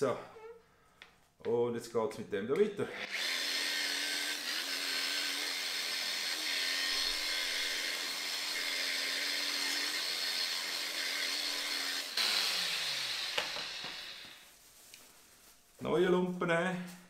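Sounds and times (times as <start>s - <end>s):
electric polisher running: 2.9s - 14.4s.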